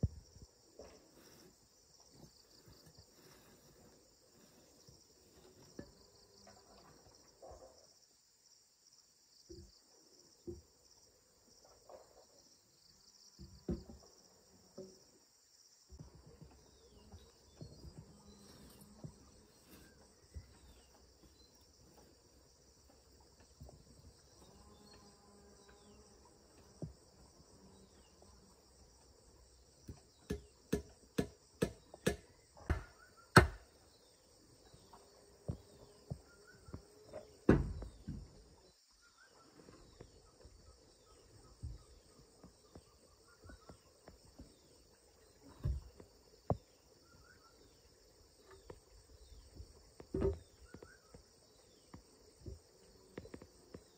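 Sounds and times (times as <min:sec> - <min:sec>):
insects chorus: 0:00.0 - 0:53.9
wooden stake being struck: 0:30.2 - 0:33.7.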